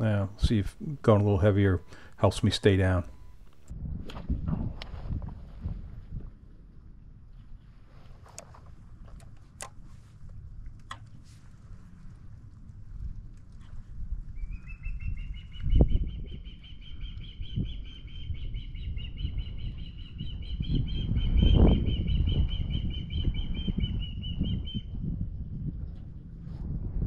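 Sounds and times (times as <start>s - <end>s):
bird chirping: 0.0s - 3.6s, 14.4s - 24.9s
wind buffeting microphone: 0.0s - 27.0s.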